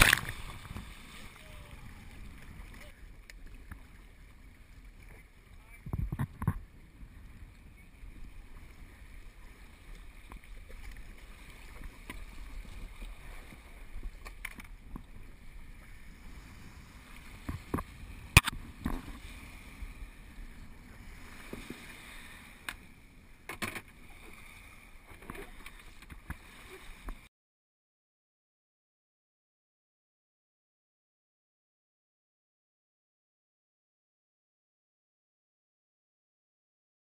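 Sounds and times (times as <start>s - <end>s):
water lapping around kayak: 0.0s - 27.3s
wind on microphone: 5.6s - 11.1s.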